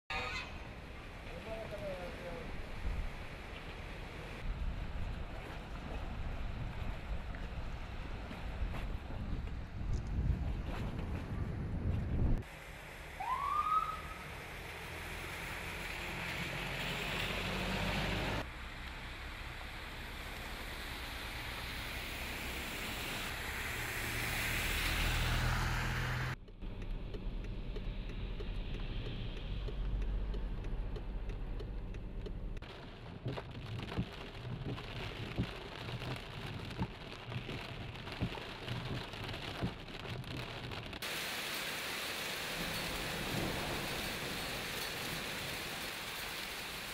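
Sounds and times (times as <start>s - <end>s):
water splashing from wheels: 0.6s - 10.0s, 12.4s - 26.3s, 27.1s - 46.9s
car engine rumbling: 14.0s - 41.0s
heavy rain falling: 32.6s - 46.9s.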